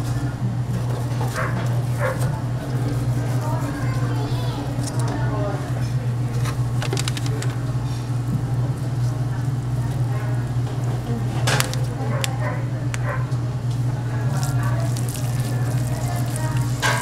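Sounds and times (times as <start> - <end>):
faint voices: 0.0 - 17.0
low machine hum: 0.0 - 17.0
sharp clicks and clatter: 6.7 - 7.6.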